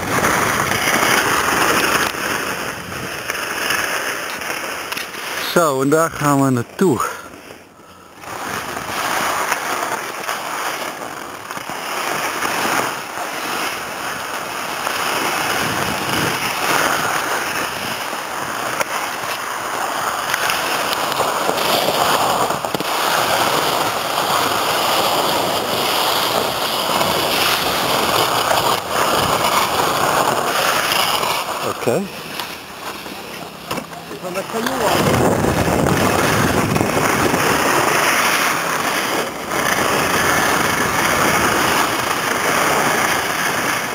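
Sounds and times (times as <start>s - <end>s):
wind on microphone: 0.0s - 3.3s, 15.3s - 18.0s, 34.7s - 43.9s
skis scraping over snow: 0.0s - 43.9s.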